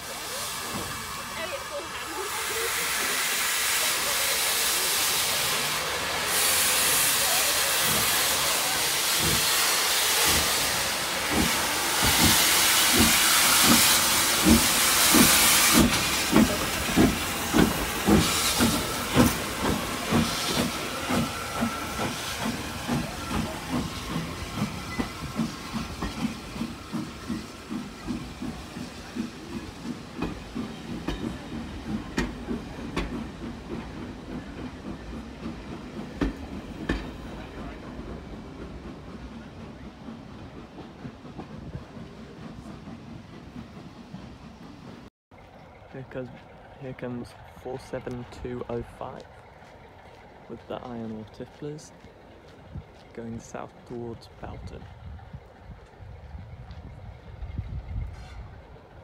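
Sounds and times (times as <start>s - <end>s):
steam hissing: 0.0s - 44.9s
steam locomotive exhaust chuffs: 0.0s - 59.0s
train coaches rolling: 0.0s - 59.0s.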